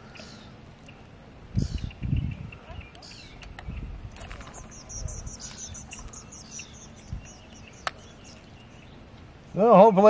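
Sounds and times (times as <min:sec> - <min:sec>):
birds chirping: 0:00.0 - 0:10.0
wind rumble on microphone: 0:01.4 - 0:08.4.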